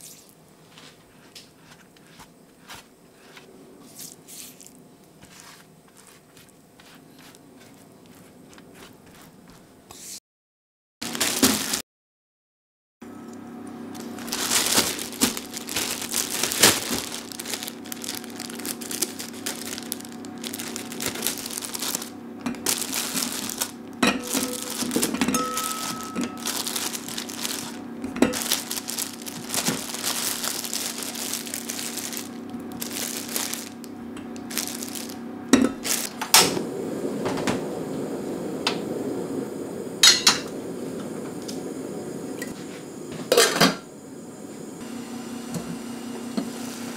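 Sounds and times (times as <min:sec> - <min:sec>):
plastic bag crinkling: 0:11.0 - 0:11.8, 0:13.9 - 0:36.6
pots and pans knocking: 0:24.0 - 0:26.4.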